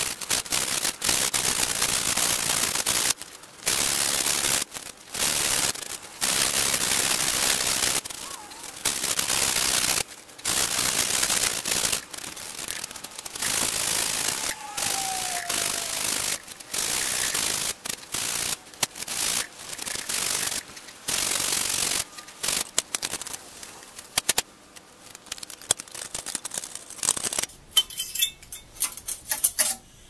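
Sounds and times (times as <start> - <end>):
gloved hand scrubbing flywheel: 0.5 - 24.4.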